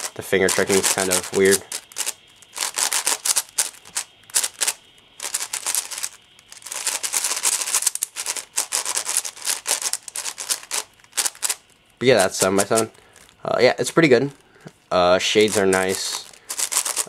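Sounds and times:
puzzle cube plastic clicking: 0.0s - 11.6s.

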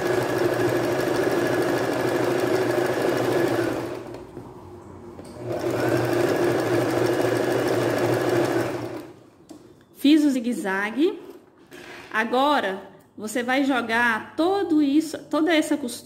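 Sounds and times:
sewing machine running: 0.0s - 4.2s, 5.4s - 9.2s.

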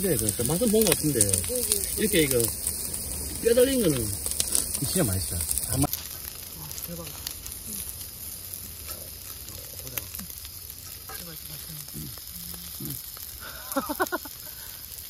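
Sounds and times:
quiet voices: 0.0s - 2.6s
meat sizzling on a griddle: 0.0s - 15.0s.

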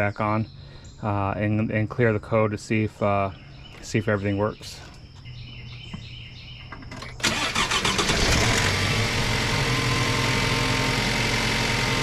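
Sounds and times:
car engine cranking and idling: 6.6s - 12.0s.

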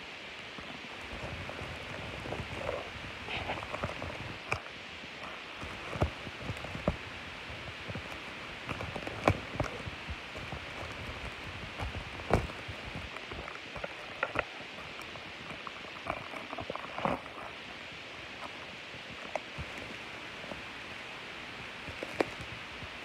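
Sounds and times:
sharp plastic crackles: 0.4s - 23.0s.

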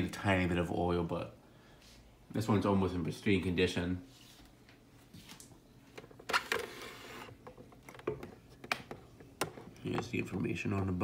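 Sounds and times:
plastic clicks and knocks: 7.3s - 10.4s.

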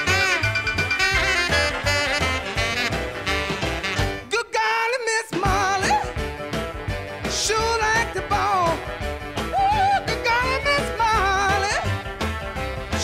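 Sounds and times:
upbeat song with singing: 4.1s - 6.4s, 7.2s - 12.0s.

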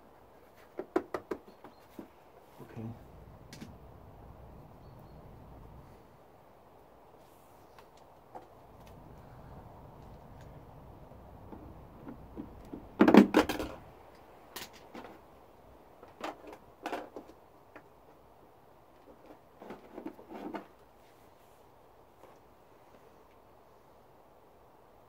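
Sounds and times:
loud clatter of knocks and rattles: 12.0s - 13.8s.

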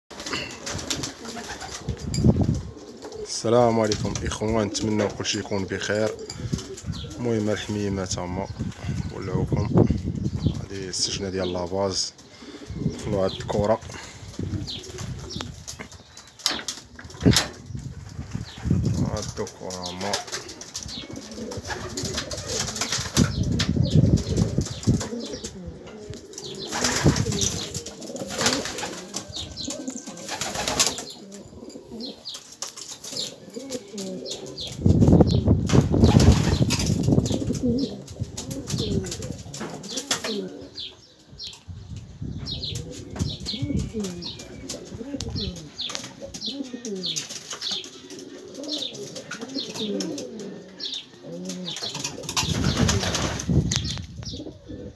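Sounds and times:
pigeon wings flapping: 0.1s - 2.1s, 19.2s - 25.2s, 26.6s - 29.4s, 30.0s - 31.2s, 35.7s - 40.4s, 51.4s - 53.6s
pigeons cooing: 0.1s - 54.9s.

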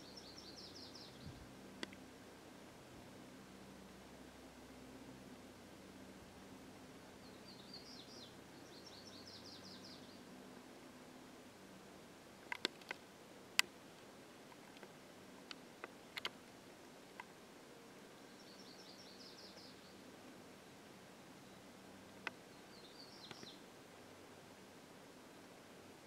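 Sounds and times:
sharp clicks: 12.4s - 13.0s, 14.5s - 16.4s.

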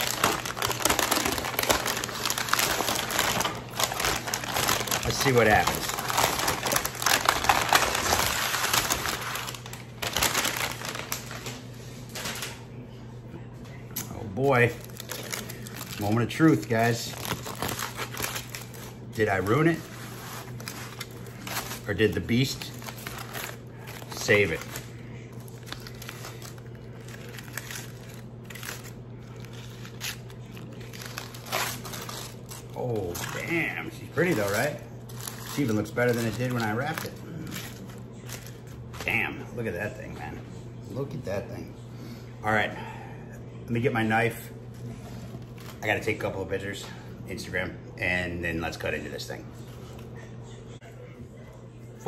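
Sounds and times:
stiff paper crinkling: 0.0s - 12.6s, 14.3s - 39.3s
steady low hum: 0.0s - 52.0s.

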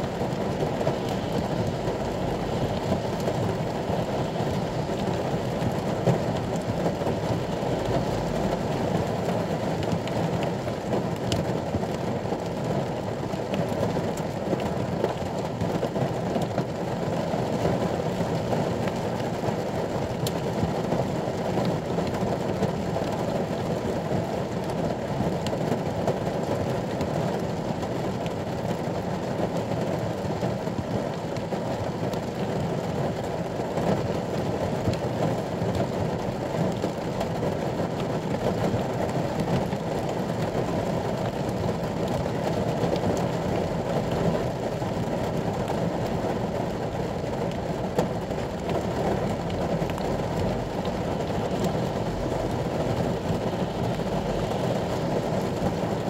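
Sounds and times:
rain on vehicle roof: 0.0s - 56.0s.

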